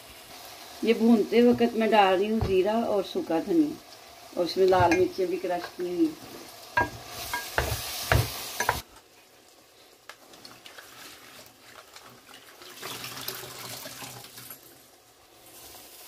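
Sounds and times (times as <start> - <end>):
food sizzling in a pot: 0.0 - 12.6, 13.3 - 16.0
wooden spatula knocking on pot: 4.7 - 5.1, 6.8 - 8.8
water splashing in a basin: 11.7 - 14.6.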